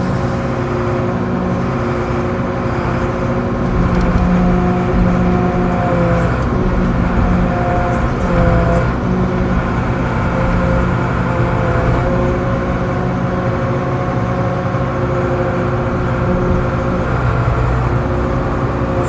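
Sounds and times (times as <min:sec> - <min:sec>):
diesel excavator engine running: 0:00.0 - 0:19.0.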